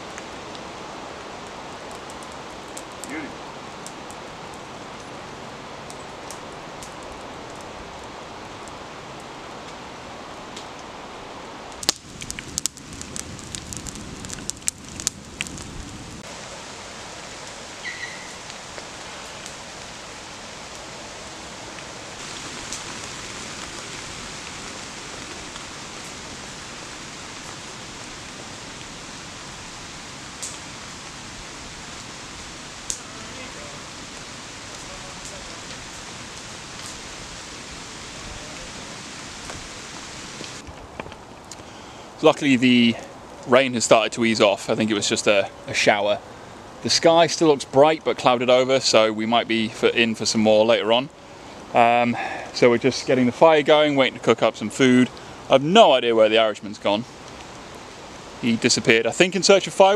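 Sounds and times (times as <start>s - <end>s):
rain hissing on foliage: 0.0s - 59.9s
sharp cracks and snaps: 11.7s - 15.9s, 30.4s - 30.7s, 57.2s - 57.6s.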